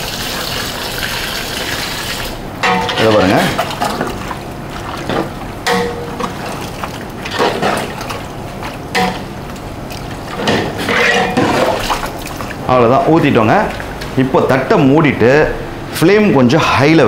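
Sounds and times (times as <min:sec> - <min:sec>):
ladle stirring wet food in pot: 0:01.0 - 0:14.3
ladle clanking against metal pot: 0:02.6 - 0:04.4, 0:05.0 - 0:06.6, 0:07.2 - 0:12.6.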